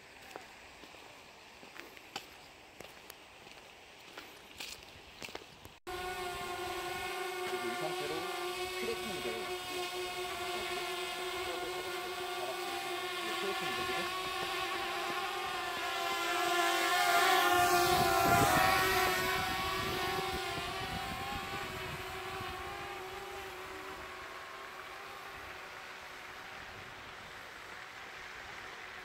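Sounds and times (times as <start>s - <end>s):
drone propellers buzzing: 5.9s - 29.0s.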